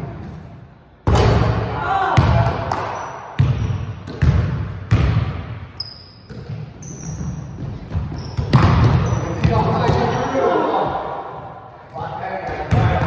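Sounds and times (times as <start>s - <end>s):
sneakers squeaking on floor: 2.9s - 11.5s
basketball bouncing on hardwood: 7.6s - 10.0s.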